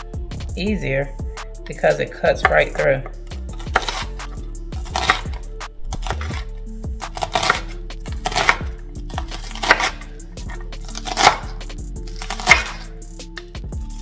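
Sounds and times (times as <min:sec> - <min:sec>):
background music: 0:00.0 - 0:14.0
knife chopping on wooden board: 0:02.4 - 0:12.9.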